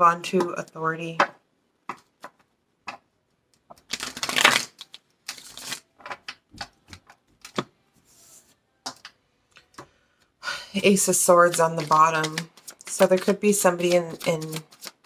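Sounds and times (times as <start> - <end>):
cards being shuffled: 3.7 - 7.7, 10.8 - 15.0.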